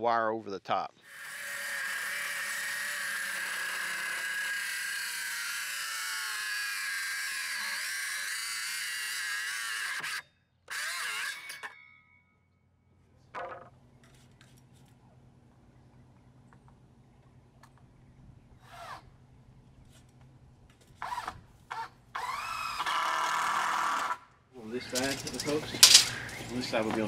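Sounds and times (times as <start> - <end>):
circular saw cutting wood: 1.0 - 11.8, 21.0 - 26.8.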